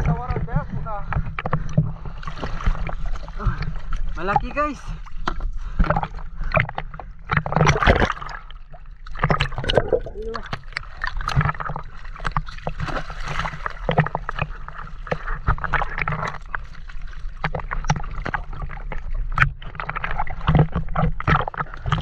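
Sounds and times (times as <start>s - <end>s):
steady low rumble: 0.0s - 8.8s
sea water splashing and gurgling: 0.0s - 22.0s
short sharp splashes and clicks: 0.0s - 22.0s.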